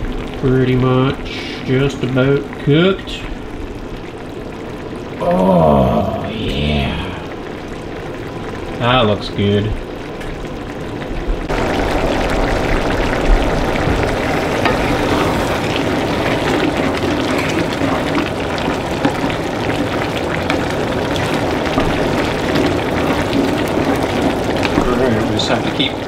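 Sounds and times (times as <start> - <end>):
sauce bubbling and sizzling: 0.0 - 26.0
wooden spoon stirring: 13.9 - 26.0.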